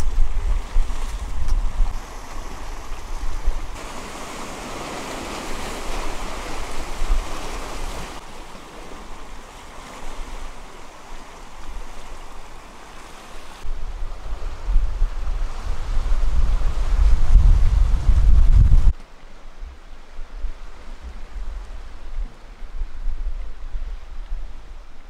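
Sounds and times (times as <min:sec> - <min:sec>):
wind rumbling on microphone: 0:00.0 - 0:12.7, 0:13.4 - 0:25.0
surf washing among rocks: 0:00.0 - 0:25.0.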